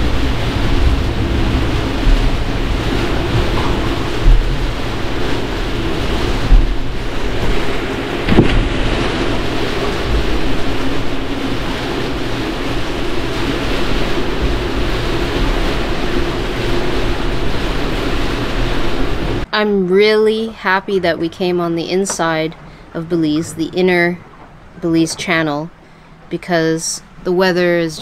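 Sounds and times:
storm wind and heavy rain: 0.0s - 19.5s, 20.9s - 28.0s
wind gusts bumping microphone: 0.0s - 19.5s
faint steady hum: 0.0s - 28.0s.

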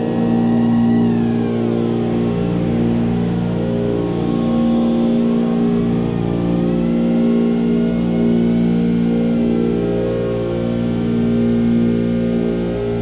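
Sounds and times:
quadcopter buzzing whine: 0.0s - 13.0s.

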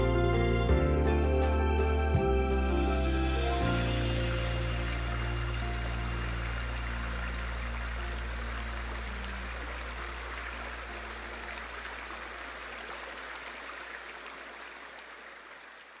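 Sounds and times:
background music notes: 0.0s - 13.4s
river water rushing: 3.4s - 16.0s.

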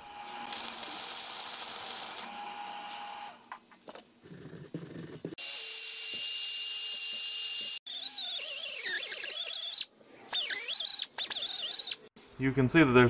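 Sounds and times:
die grinder whine on metal: 0.0s - 3.4s.

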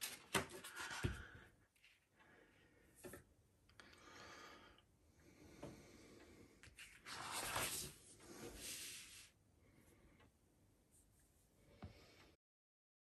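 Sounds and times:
paper pages rustling: 0.0s - 1.9s, 6.6s - 9.2s.

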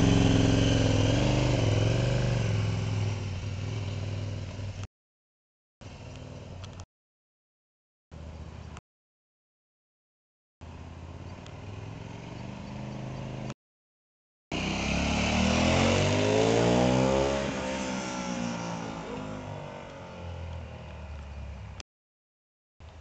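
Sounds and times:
motorcycle engine accelerating: 0.0s - 4.9s, 10.6s - 13.6s, 14.5s - 21.1s.

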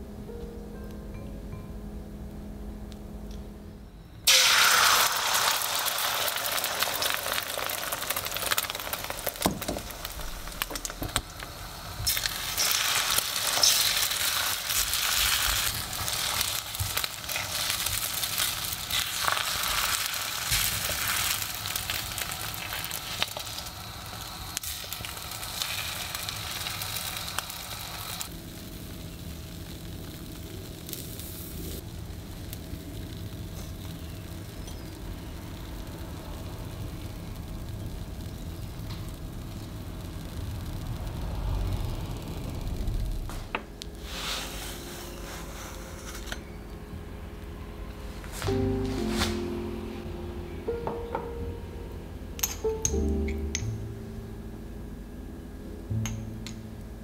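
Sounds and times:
egg frying in hot oil: 4.3s - 47.3s.

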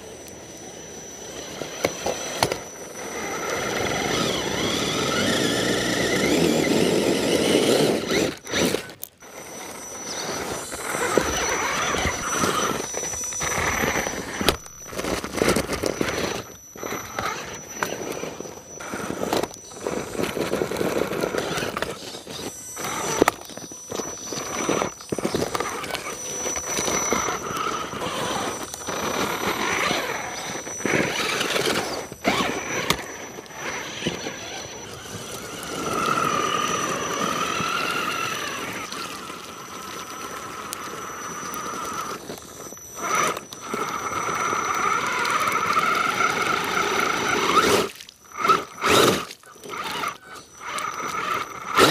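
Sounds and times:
electric motor whining: 0.0s - 51.9s
tyres crunching through snow and ice: 0.0s - 51.9s.

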